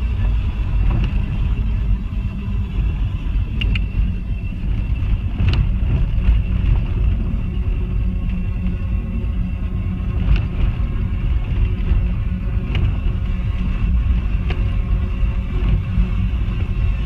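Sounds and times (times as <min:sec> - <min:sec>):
engine and tyres rumbling on gravel: 0:00.0 - 0:17.0.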